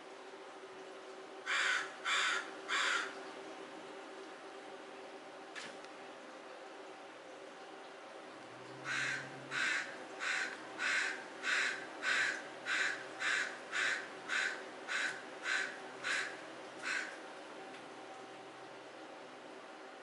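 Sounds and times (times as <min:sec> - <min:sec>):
crow cawing: 0:01.5 - 0:03.2, 0:08.8 - 0:17.2.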